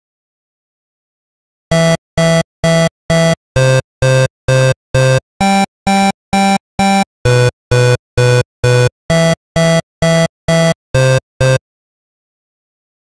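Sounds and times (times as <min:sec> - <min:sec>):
synthesizer playing short chords: 0:01.7 - 0:11.6.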